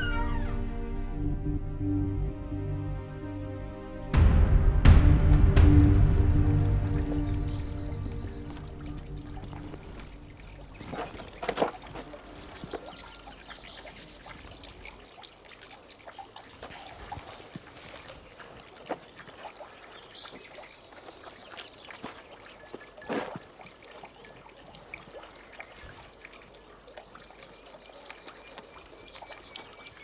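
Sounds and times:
film score music: 0:00.0 - 0:10.8
footfalls on dirt: 0:09.4 - 0:13.4, 0:16.6 - 0:19.7, 0:20.3 - 0:23.8.

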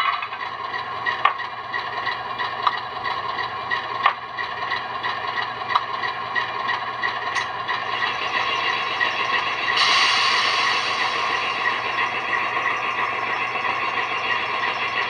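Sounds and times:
diesel engine idling through small speakers: 0:00.0 - 0:15.0
loud hiss of air: 0:09.8 - 0:11.7.

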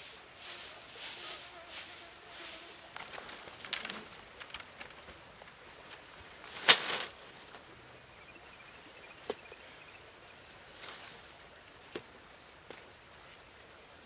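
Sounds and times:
bamboo poles clattering on ground: 0:00.0 - 0:07.7
rustle: 0:00.0 - 0:14.0.

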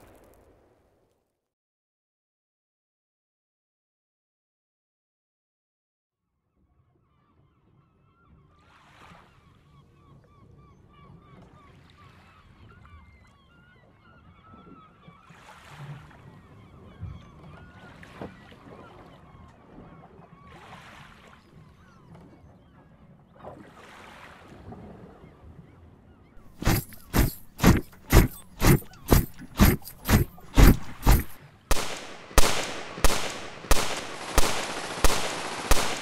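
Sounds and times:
heavy marching footsteps: 0:26.4 - 0:36.0
honking bird calls: 0:26.4 - 0:36.0
waves washing in: 0:26.4 - 0:36.0.

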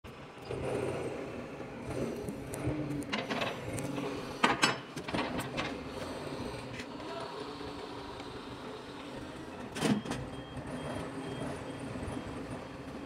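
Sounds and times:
metal clanks and knocks: 0:04.4 - 0:05.8.

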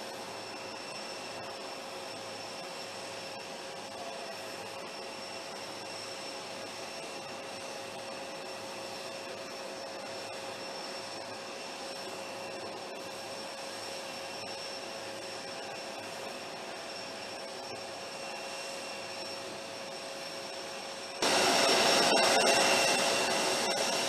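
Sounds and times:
jet turbine whine: 0:00.0 - 0:24.0.

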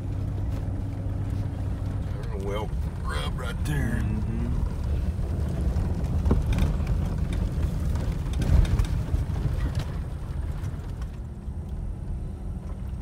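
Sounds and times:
vehicle driving rumble: 0:00.0 - 0:13.0
knocks and rattles: 0:05.2 - 0:11.1.

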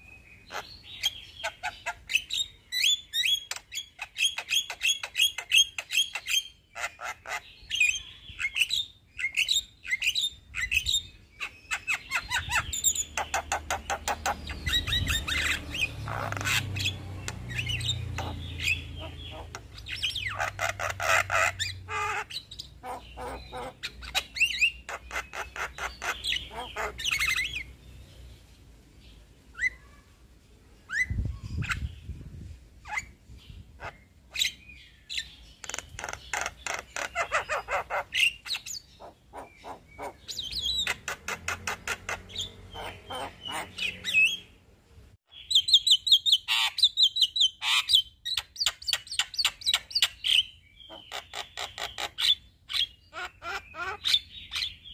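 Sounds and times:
high bird chirps: 0:00.0 - 0:27.8, 0:34.3 - 0:44.6.

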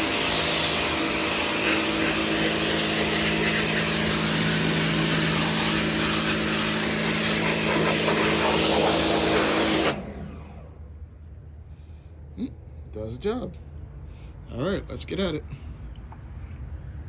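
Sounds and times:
water spray hissing: 0:00.0 - 0:10.0
pressure washer motor hum: 0:00.0 - 0:11.1.

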